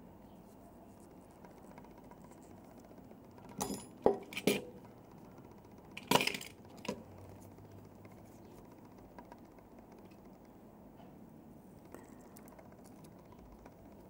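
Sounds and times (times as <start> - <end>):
small hard parts clicking and clinking: 1.4 - 10.5.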